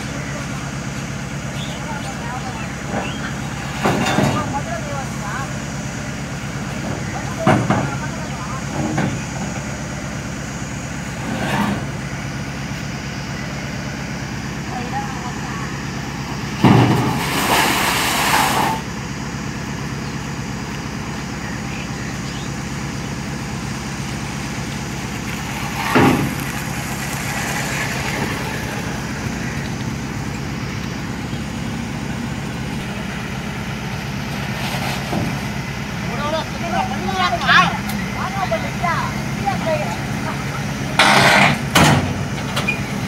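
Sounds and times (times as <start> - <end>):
engine idling: 0.0 - 43.0
loud burst of noise: 16.5 - 18.9
metal ramp knock: 41.0 - 42.2.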